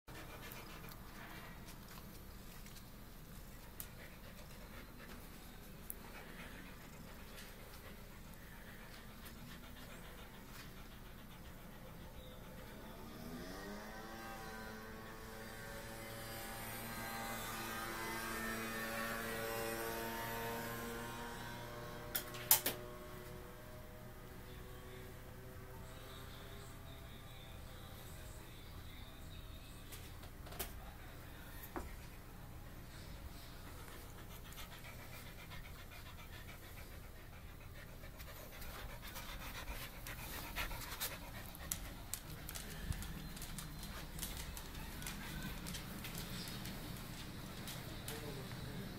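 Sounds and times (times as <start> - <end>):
dog panting: 0.1 - 13.4, 31.8 - 48.9.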